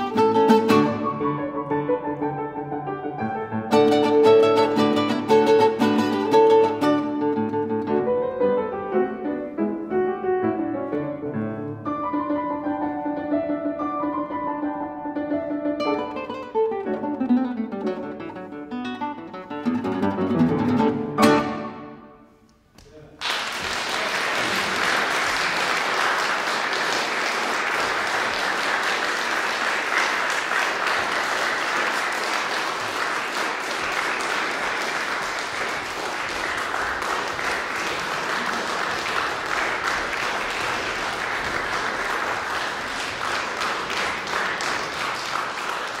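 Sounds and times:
audience applauding: 0:23.2 - 0:46.0.

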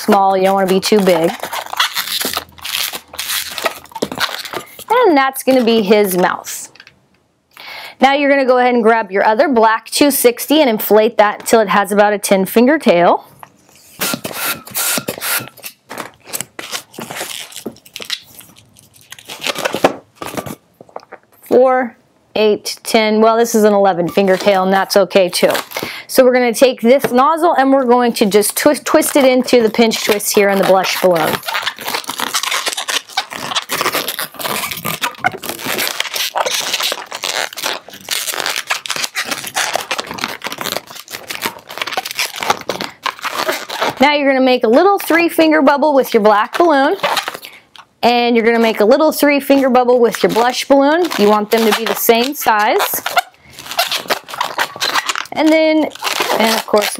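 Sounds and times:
balloon squeaking and rubbing: 0:00.0 - 0:06.5, 0:13.6 - 0:20.6, 0:23.4 - 0:47.5, 0:48.5 - 0:56.9
hand pump strokes: 0:13.8 - 0:15.7.

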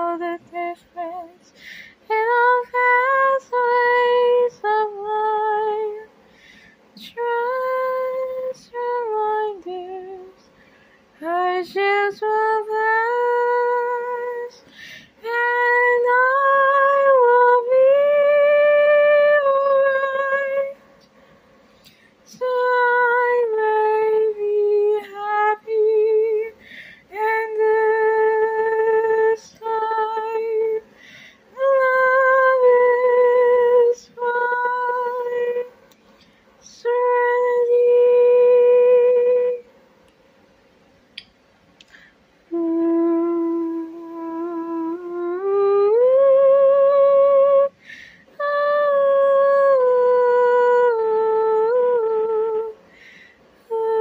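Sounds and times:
person humming a melody: 0:00.0 - 0:01.5, 0:42.5 - 0:47.8, 0:48.4 - 0:52.8.

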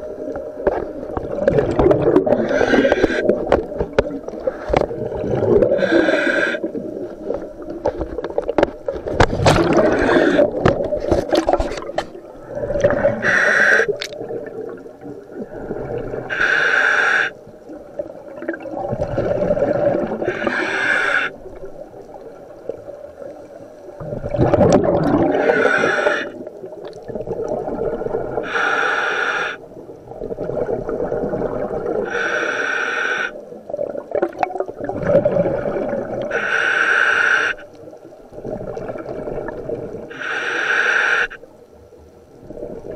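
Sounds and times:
exhaled bubbles rumbling: 0:00.0 - 0:16.3, 0:17.5 - 0:20.6, 0:21.4 - 0:28.5, 0:29.6 - 0:32.2, 0:33.4 - 0:36.4, 0:37.8 - 0:40.1, 0:42.4 - 0:42.9
hissing regulator inhalations: 0:02.3 - 0:03.4, 0:05.7 - 0:06.7, 0:09.7 - 0:10.6, 0:12.8 - 0:14.0, 0:16.3 - 0:17.4, 0:20.2 - 0:21.4, 0:25.3 - 0:26.4, 0:28.4 - 0:29.6, 0:32.1 - 0:33.4, 0:36.2 - 0:37.7, 0:40.1 - 0:41.4.

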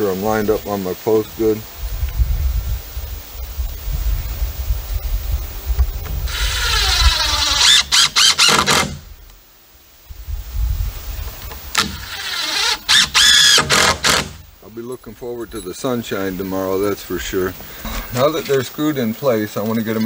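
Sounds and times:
cordless driver driving screws: 0:06.3 - 0:09.0, 0:11.7 - 0:14.4.

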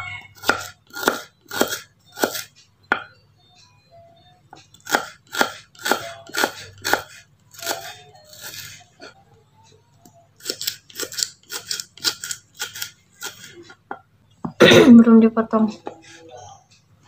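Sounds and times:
knife chopping on wooden board: 0:00.4 - 0:03.0, 0:04.8 - 0:07.9.

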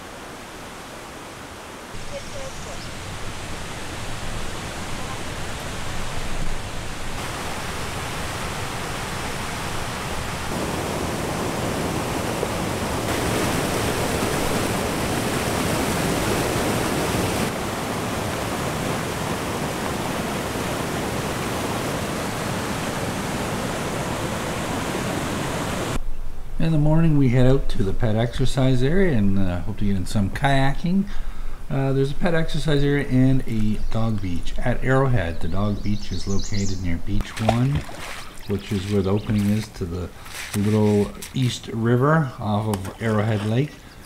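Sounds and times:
waterfall and rapids rushing: 0:00.0 - 0:26.0, 0:37.2 - 0:44.0.

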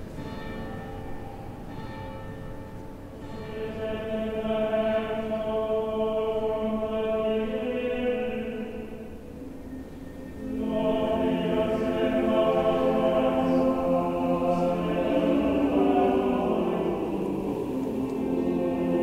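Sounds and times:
church bells ringing: 0:00.0 - 0:05.7, 0:10.1 - 0:19.0
choir singing long notes: 0:00.0 - 0:19.0.

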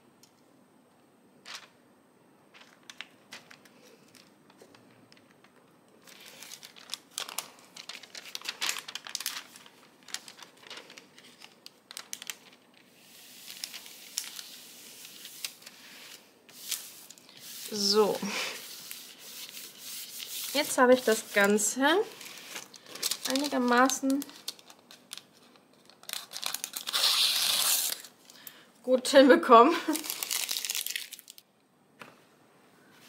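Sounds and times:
plastic film crinkling: 0:02.5 - 0:28.5, 0:29.8 - 0:31.5
soft rubbing of canvas: 0:14.6 - 0:22.6.

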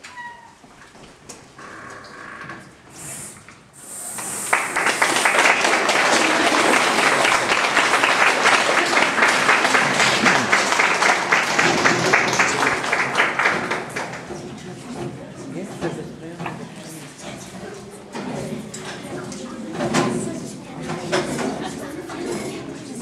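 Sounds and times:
audience applauding: 0:04.1 - 0:14.4.

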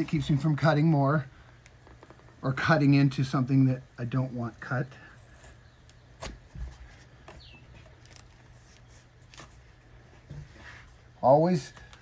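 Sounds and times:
vinyl rustling: 0:04.1 - 0:12.0.

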